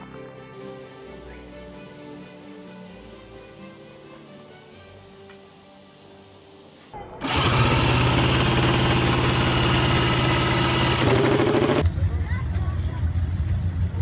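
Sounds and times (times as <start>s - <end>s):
single-cylinder engine starting and idling: 7.2s - 14.0s.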